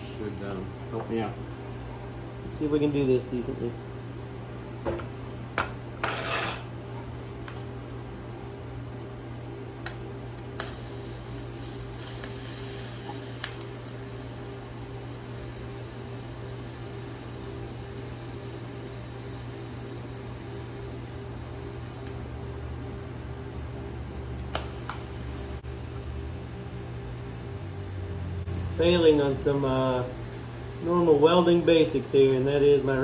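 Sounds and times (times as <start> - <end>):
welding machine low hum: 7.8 - 33.0
welding arc hissing: 10.6 - 22.1, 24.6 - 33.0.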